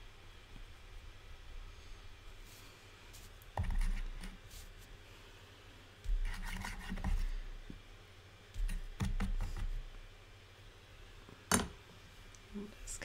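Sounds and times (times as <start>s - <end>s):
tool scraping clay: 6.0s - 7.7s.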